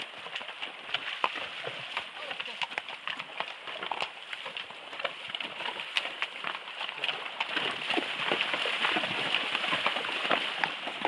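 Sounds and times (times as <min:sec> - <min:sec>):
water splashing: 0:03.2 - 0:11.0.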